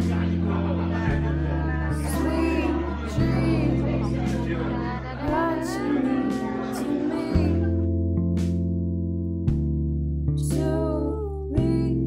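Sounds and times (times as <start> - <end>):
person singing: 0.0 - 7.9, 10.4 - 12.0
plucked guitar: 0.0 - 12.0.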